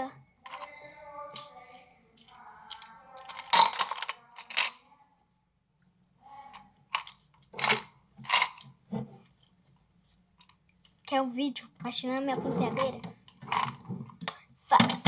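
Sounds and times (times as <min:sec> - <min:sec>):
makeup brushes clattering: 0:00.5 - 0:01.5, 0:02.2 - 0:04.8, 0:07.0 - 0:09.5, 0:12.4 - 0:15.0.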